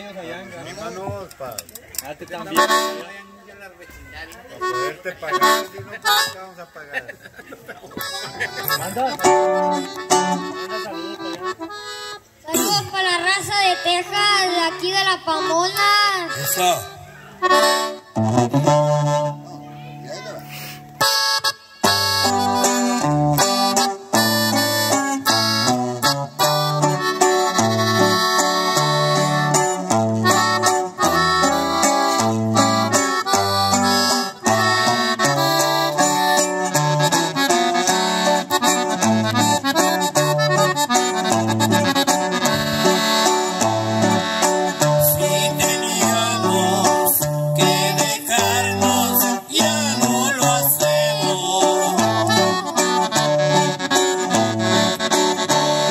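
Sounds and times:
accordion melody: 0:00.0 - 0:07.0, 0:07.9 - 0:55.9
strummed guitar: 0:08.0 - 0:55.9
bass line: 0:17.4 - 0:20.1, 0:21.8 - 0:55.9.

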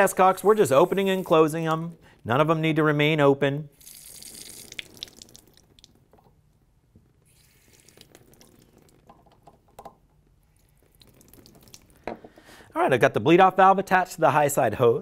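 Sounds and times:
water spurting from a valve: 0:03.8 - 0:05.9, 0:07.3 - 0:09.0.

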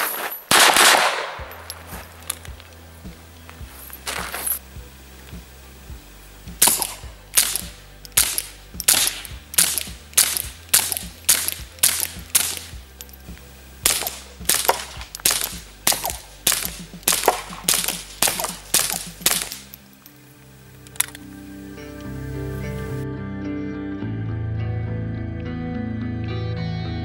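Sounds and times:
suppressed pistol shots: 0:00.5 - 0:01.8, 0:06.6 - 0:12.8, 0:13.8 - 0:19.8.

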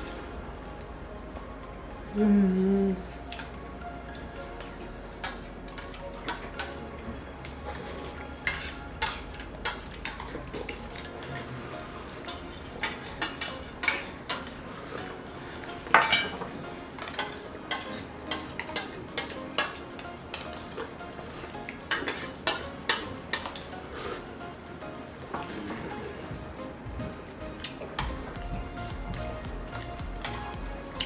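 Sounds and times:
spoons clinking on steel plates: 0:08.4 - 0:11.4, 0:12.2 - 0:15.1, 0:15.9 - 0:20.9, 0:21.7 - 0:23.7.

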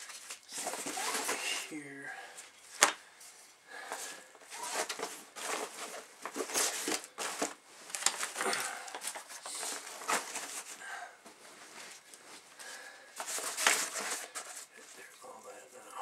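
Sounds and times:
backpack fabric rustling: 0:00.0 - 0:01.9, 0:02.7 - 0:14.9
hard items clicking together: 0:04.6 - 0:10.7.

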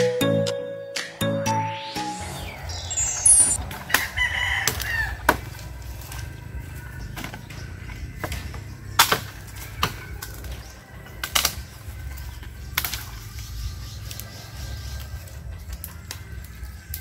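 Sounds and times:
wood branches cracking: 0:03.7 - 0:17.0.

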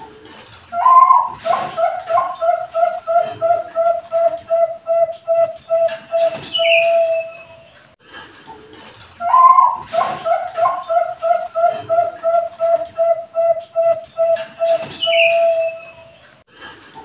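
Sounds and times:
dove cooing: 0:00.7 - 0:07.7, 0:09.2 - 0:16.2.

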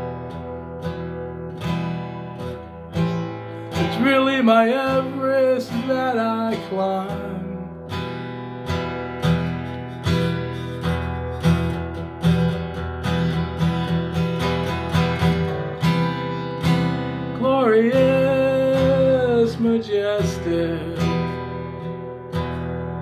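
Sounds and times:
guitar strumming: 0:00.0 - 0:23.0
man singing: 0:03.7 - 0:07.9, 0:17.3 - 0:21.5.

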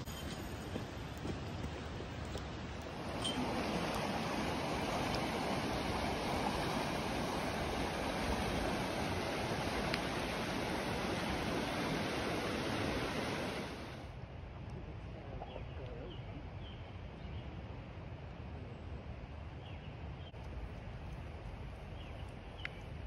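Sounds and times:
river rushing: 0:00.0 - 0:14.1
outdoor background: 0:00.0 - 0:23.0.

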